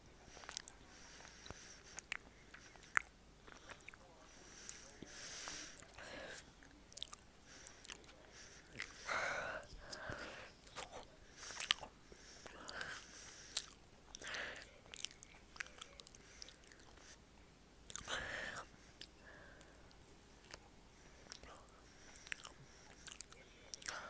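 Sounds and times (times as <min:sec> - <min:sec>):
wet chewing clicks: 0:00.4 - 0:04.0, 0:06.9 - 0:09.0, 0:09.9 - 0:11.9, 0:12.5 - 0:17.0, 0:17.9 - 0:18.1, 0:20.4 - 0:24.0
loud noisy breaths: 0:04.3 - 0:06.5.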